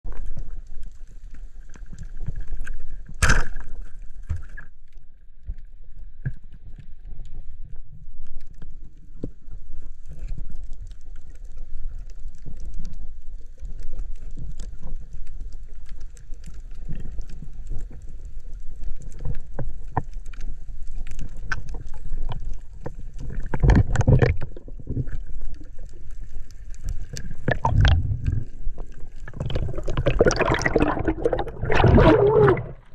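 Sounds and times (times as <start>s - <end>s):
underwater rumble: 0.0s - 32.9s
bubbling noise: 27.3s - 32.9s.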